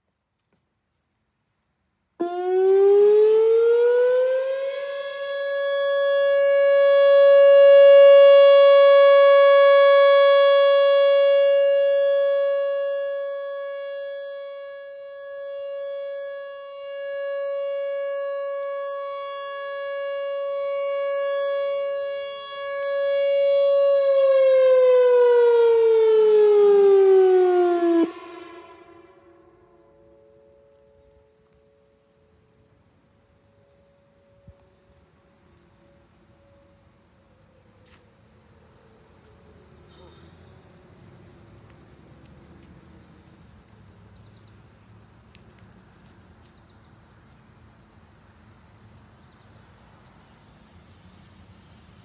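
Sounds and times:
warning siren steady tone: 2.2 - 40.7.

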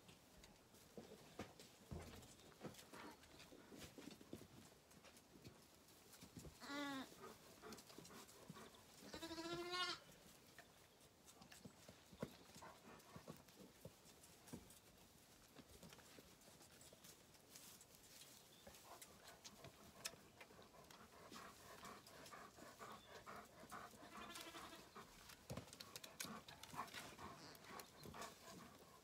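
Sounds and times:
lamb bleating: 9.1 - 10.0, 24.2 - 24.8.

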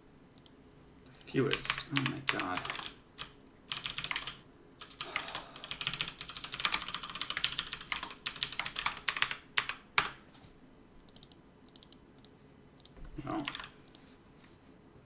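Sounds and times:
fast typing on keyboard: 1.4 - 10.2, 13.3 - 13.8.

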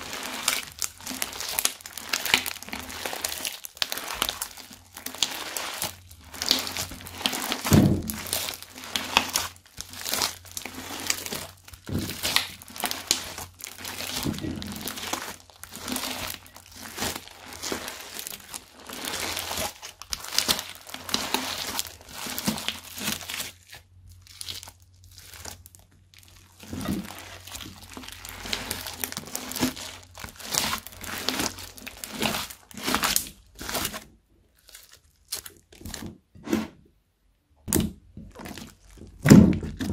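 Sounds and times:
slime squishing and crackling: 0.0 - 36.3, 37.6 - 39.9
dull thump of slime: 7.6 - 8.3, 39.0 - 39.9.

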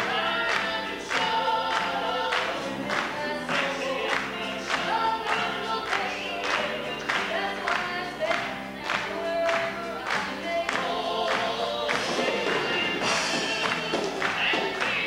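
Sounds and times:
gospel band playing: 0.0 - 15.0
voices singing in harmony: 0.0 - 15.0.

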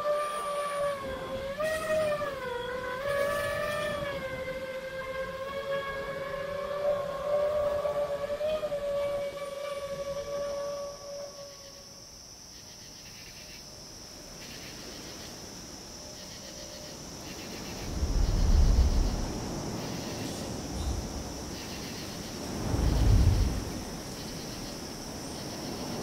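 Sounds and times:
high-pitched insect-like hum: 0.0 - 26.0
deep swells: 17.5 - 24.4.

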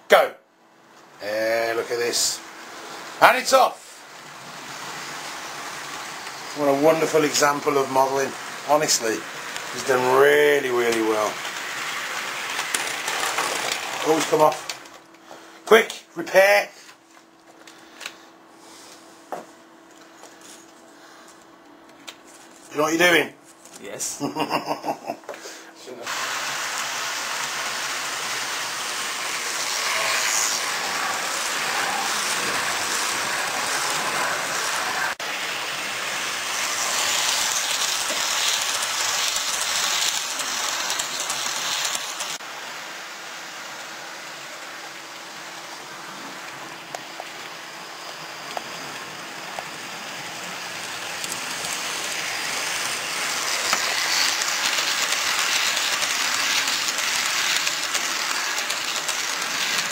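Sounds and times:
model trains whirring on rails: 1.1 - 15.0, 26.0 - 59.9.

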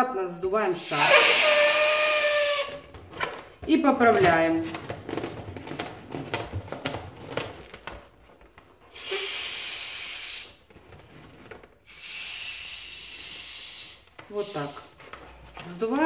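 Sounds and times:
air hissing out of balloon: 0.8 - 2.9, 8.9 - 10.7, 11.8 - 15.0
hands squeaking on balloon: 0.8 - 3.3, 8.9 - 16.0.

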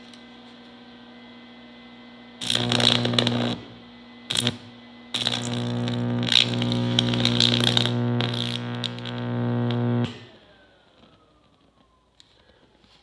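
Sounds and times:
low hum: 2.4 - 10.2
electric arc buzzing crackle: 2.4 - 10.3
spark: 2.4 - 10.5.

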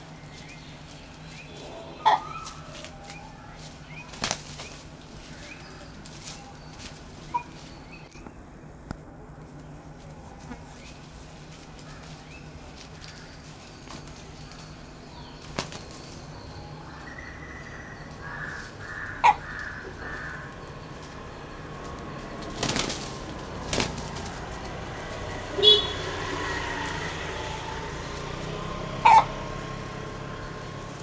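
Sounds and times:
roosters fighting in undergrowth: 0.0 - 31.0
wing flapping: 0.3 - 8.1, 9.6 - 16.3, 18.2 - 31.0
sharp rooster calls: 29.0 - 29.4.

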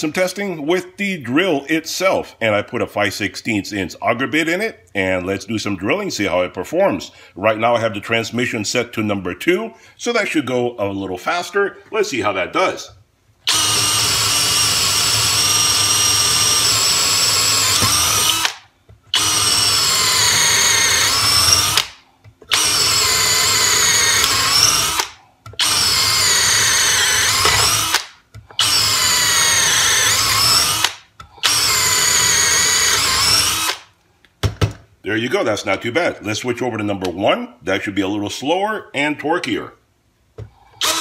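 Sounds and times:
drill boring into wood: 13.5 - 33.9, 40.8 - 41.0.

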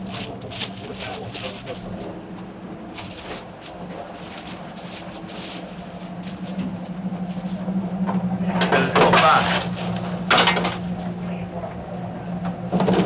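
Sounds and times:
low equipment hum: 0.0 - 13.0
scraping and rustling: 2.9 - 7.7.

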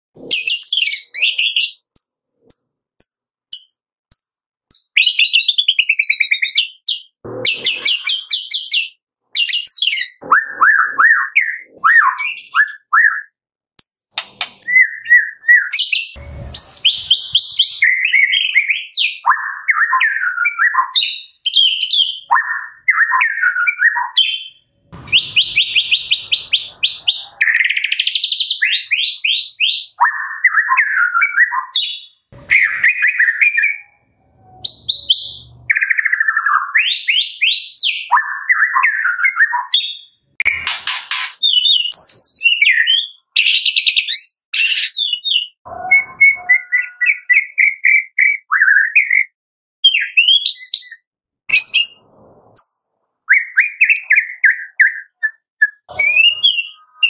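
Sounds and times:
bird singing varied song: 0.2 - 57.0
harsh bird notes: 7.3 - 8.9, 14.1 - 19.2, 21.1 - 29.7, 32.4 - 36.9, 40.4 - 42.9, 44.6 - 48.4, 55.9 - 57.0.

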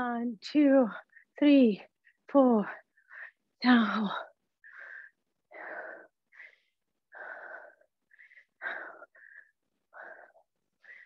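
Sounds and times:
woman breathing hard: 4.3 - 11.0.

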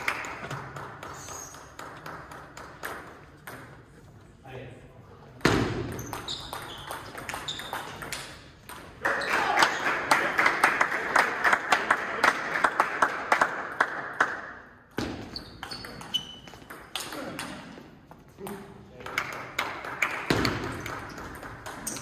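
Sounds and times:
people clapping: 0.0 - 3.3, 8.9 - 14.8, 19.0 - 22.0
shoe squeaks: 1.1 - 1.7, 5.9 - 8.0, 15.2 - 16.7.

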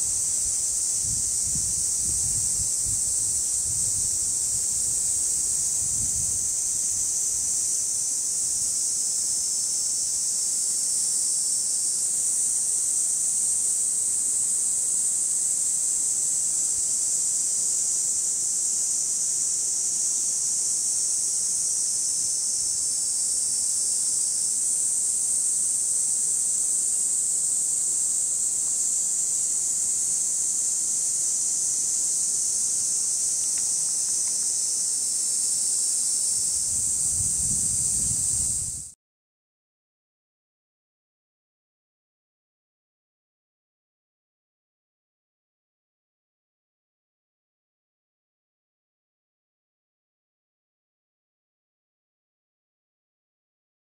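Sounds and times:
cicadas buzzing: 0.0 - 39.0.

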